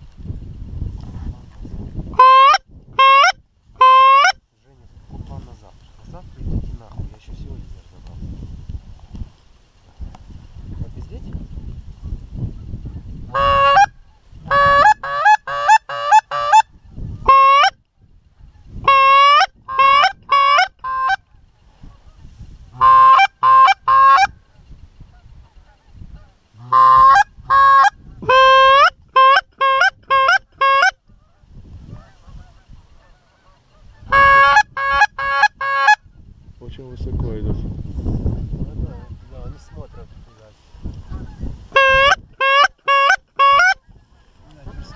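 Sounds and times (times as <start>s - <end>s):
geese honking: 2.2s - 4.4s, 13.3s - 17.7s, 18.9s - 21.2s, 21.9s - 24.4s, 25.1s - 36.0s, 41.0s - 44.9s.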